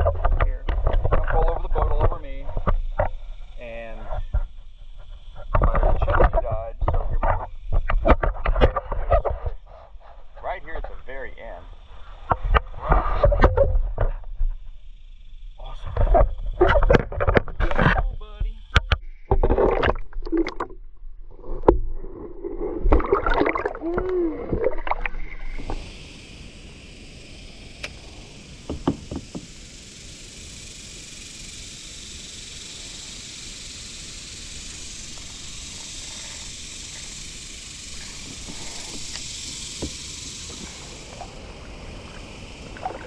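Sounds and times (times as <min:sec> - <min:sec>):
steady high hiss: 0:00.0 - 0:16.9, 0:17.5 - 0:19.3, 0:21.2 - 0:43.0
muffled underwater splashing: 0:19.3 - 0:25.9, 0:37.9 - 0:43.0
knocks: 0:28.7 - 0:29.5.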